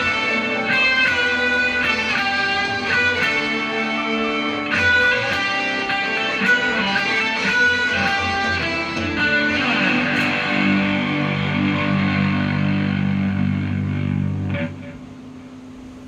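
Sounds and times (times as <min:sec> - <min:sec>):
electric guitar playing: 0:00.0 - 0:15.9.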